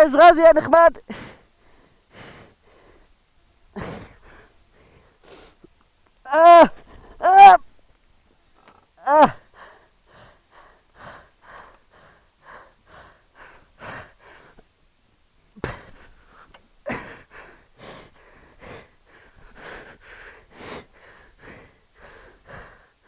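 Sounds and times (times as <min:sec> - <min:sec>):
man panting heavily: 0:01.0 - 0:05.7, 0:06.6 - 0:07.3, 0:09.0 - 0:14.8, 0:15.6 - 0:23.0.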